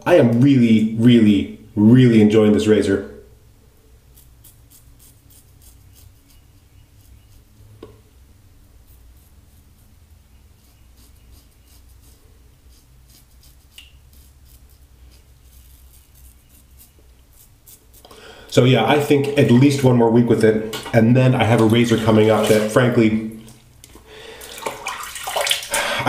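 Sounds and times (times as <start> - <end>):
razor scraping stubble: 4.1 - 7.5, 10.6 - 18.2.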